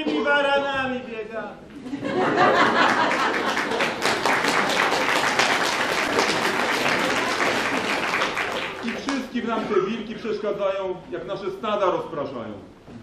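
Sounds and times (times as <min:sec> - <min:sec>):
audience applauding: 0:02.5 - 0:09.4.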